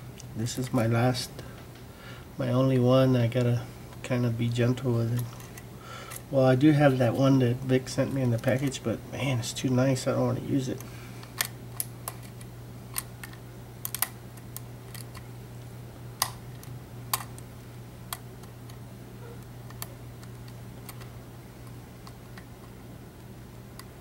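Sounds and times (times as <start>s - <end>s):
lock pick metallic clicks: 11.3s - 15.2s.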